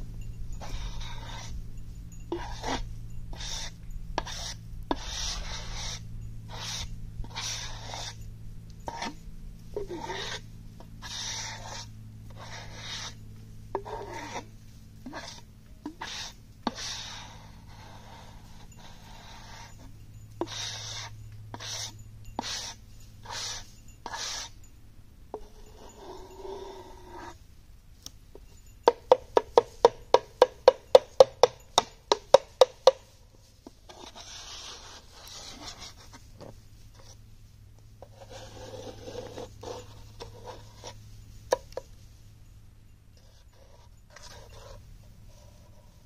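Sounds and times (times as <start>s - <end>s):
faint low hum: 0.0s - 46.0s
gloved hand scraping wet clay: 16.0s - 18.3s.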